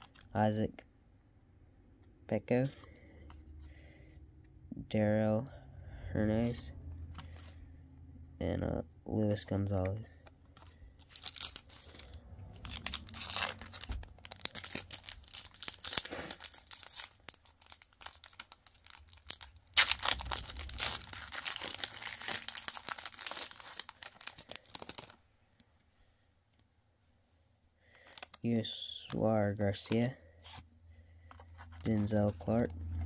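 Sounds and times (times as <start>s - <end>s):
plastic wrapper tearing and crinkling: 0.0s - 0.4s, 10.6s - 25.2s, 28.0s - 28.4s, 31.3s - 33.0s.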